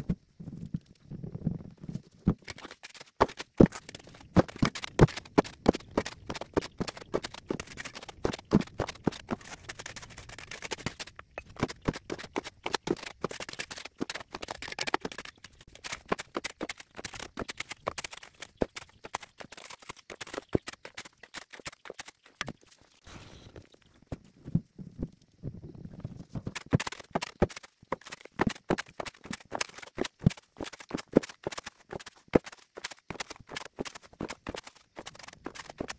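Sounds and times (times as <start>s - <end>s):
shovel scraping gravel: 2.5s - 22.3s.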